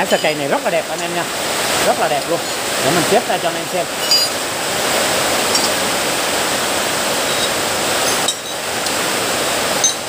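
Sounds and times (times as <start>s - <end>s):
iron bars clinking on concrete: 0.0s - 1.1s, 4.0s - 4.4s, 5.5s - 5.8s, 7.3s - 8.6s, 9.8s - 10.0s.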